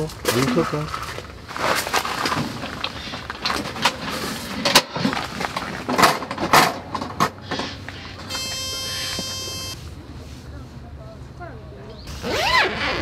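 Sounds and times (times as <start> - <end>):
steady buzzing tone: 8.3 - 9.8.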